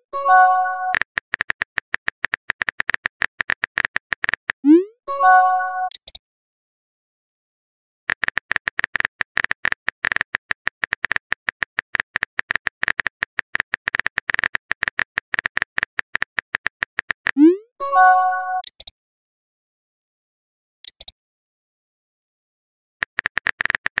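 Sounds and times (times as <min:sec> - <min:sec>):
phone keyboard clicks: 0:00.9 - 0:04.6, 0:05.9 - 0:06.2, 0:08.1 - 0:17.4, 0:18.6 - 0:18.9, 0:20.8 - 0:21.1, 0:23.0 - 0:24.0.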